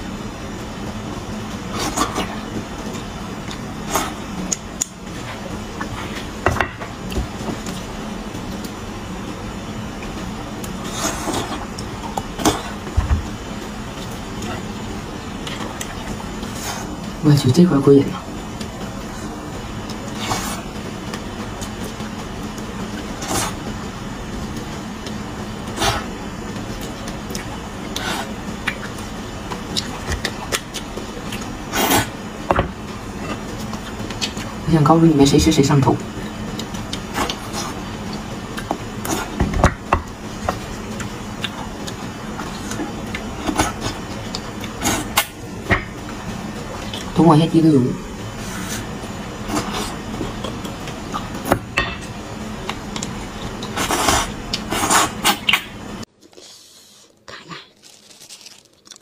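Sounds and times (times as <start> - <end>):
wet sucking and slurping: 56.2 - 57.8.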